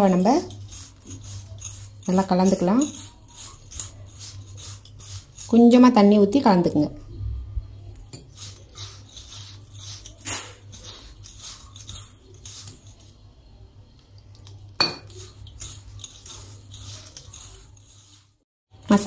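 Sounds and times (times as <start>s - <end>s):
fingers scraping steel bowl: 0.1s - 5.8s, 8.1s - 13.1s, 15.0s - 18.4s
clinks on metal bowl: 14.8s - 15.2s.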